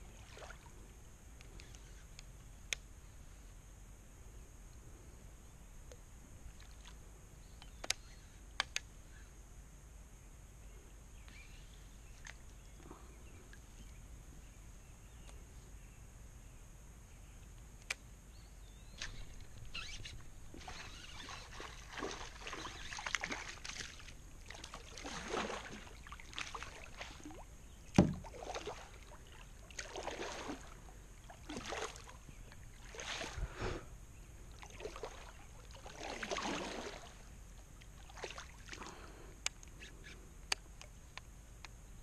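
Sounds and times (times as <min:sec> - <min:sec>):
fish splashing in water: 0:20.5 - 0:27.4, 0:28.2 - 0:32.2, 0:34.6 - 0:37.2.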